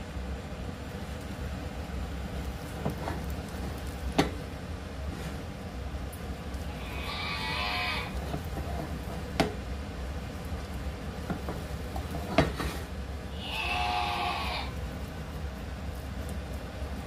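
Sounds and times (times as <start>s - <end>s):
steady low hum: 0.0s - 17.0s
utensil scraping mashed potato: 2.4s - 4.4s, 6.5s - 9.4s, 10.8s - 17.0s.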